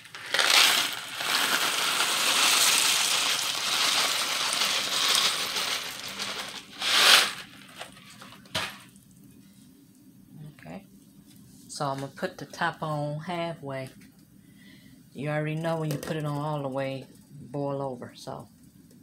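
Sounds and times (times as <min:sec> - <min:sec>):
dry pasta pouring into boiling water: 0:00.0 - 0:08.6.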